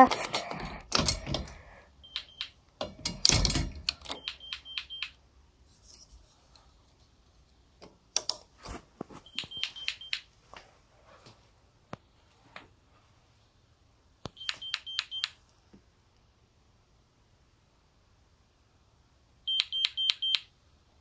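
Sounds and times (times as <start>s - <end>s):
door clicks and knocks: 0.6s - 1.6s, 2.8s - 4.2s.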